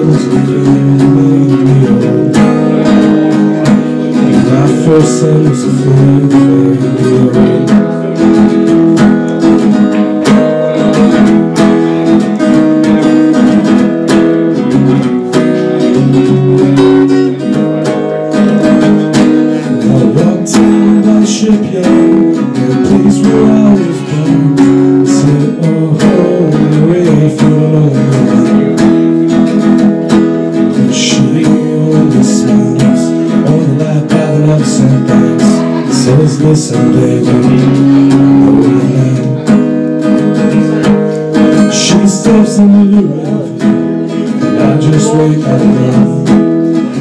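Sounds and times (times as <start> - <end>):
guitar strummed: 0.0 - 47.0.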